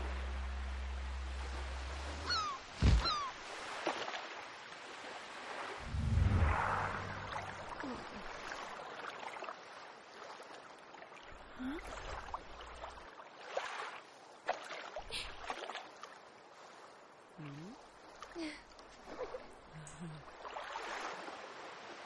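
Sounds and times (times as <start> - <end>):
water sloshing and lapping: 0.0 - 22.0
short rising squeaks: 2.2 - 3.4.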